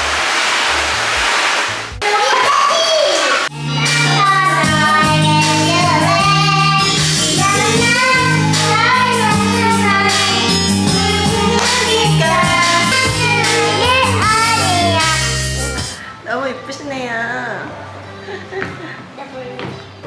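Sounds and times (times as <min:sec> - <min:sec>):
karaoke backing music: 0:02.0 - 0:20.0
girl singing into microphone: 0:03.6 - 0:15.4.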